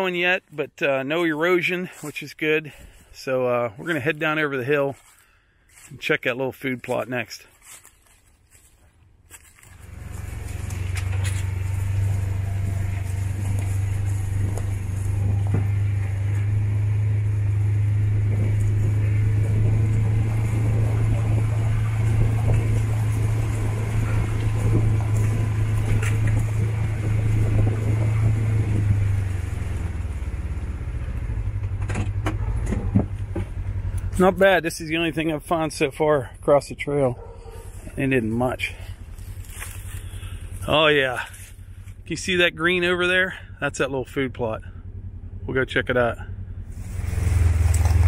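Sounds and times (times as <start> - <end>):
utility vehicle engine droning: 0.0 - 48.0
knocks and rattles from bumps: 31.5 - 34.2.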